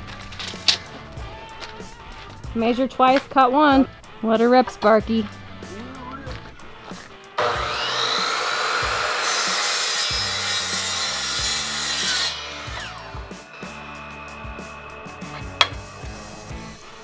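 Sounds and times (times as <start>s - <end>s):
miter saw cutting aluminum: 7.4s - 13.5s.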